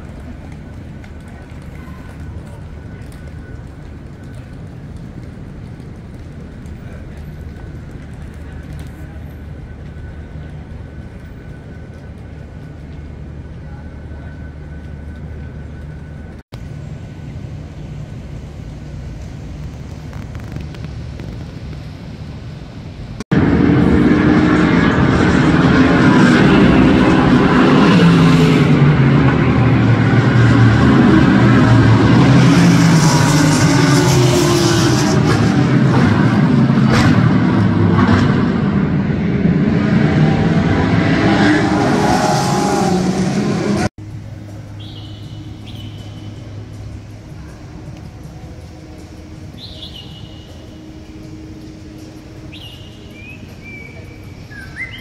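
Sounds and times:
loud engine drone: 0.0s - 55.0s
open-air noise: 0.0s - 55.0s
low lobby hum: 44.0s - 54.9s
bird whistling high notes: 52.5s - 55.0s.

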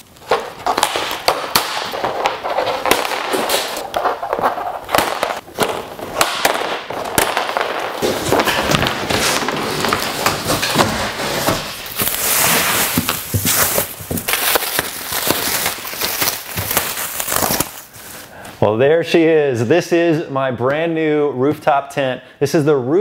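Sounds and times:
straps cracking and rustling on cardboard: 0.0s - 18.3s
plastic straps snapping: 13.0s - 17.9s.

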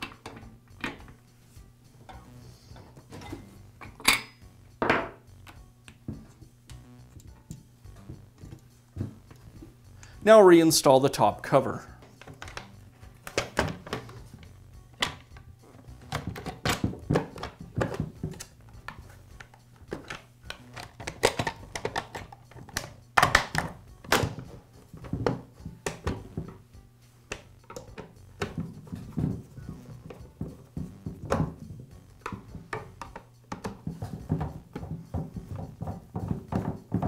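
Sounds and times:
plastic clicking and knocking: 12.1s - 14.2s, 16.0s - 26.6s, 27.3s - 29.4s, 30.1s - 37.0s.

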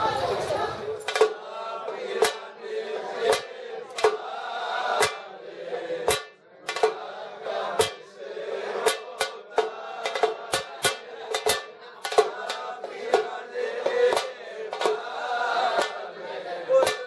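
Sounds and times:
men singing: 0.0s - 17.0s
bass drum struck with stick: 6.0s - 7.0s.

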